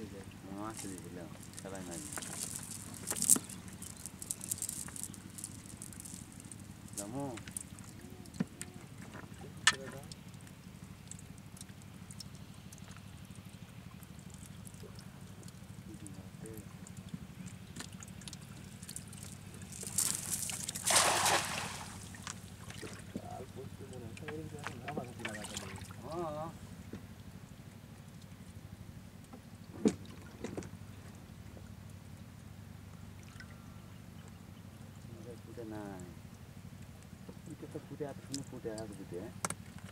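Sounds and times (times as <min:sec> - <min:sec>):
water dripping and trickling: 0:00.2 - 0:26.4, 0:38.0 - 0:39.9.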